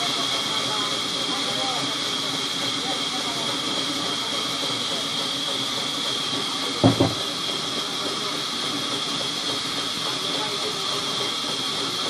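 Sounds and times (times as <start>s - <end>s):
loud double knock: 6.8s - 7.2s.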